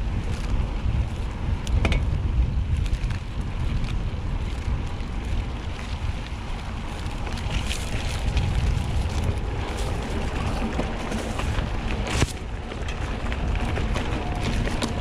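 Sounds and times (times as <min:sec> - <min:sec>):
bike tyre noise: 0:00.0 - 0:15.0
wind rumbling on microphone: 0:00.0 - 0:15.0.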